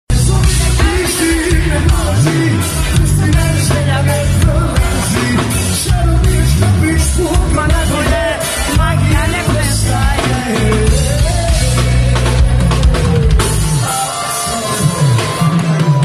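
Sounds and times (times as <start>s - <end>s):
bass guitar: 0.1s - 16.0s
electric guitar: 0.1s - 16.0s
man singing into a microphone: 0.1s - 16.0s.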